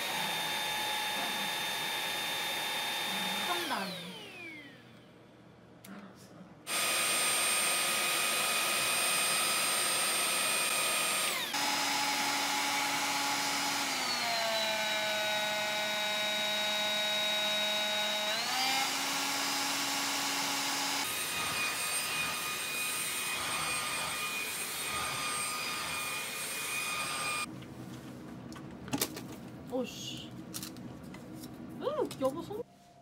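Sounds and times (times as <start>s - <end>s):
handheld vacuum running: 0.0s - 5.1s, 6.7s - 27.5s
stick vacuum high whine: 0.0s - 5.1s, 6.7s - 27.5s.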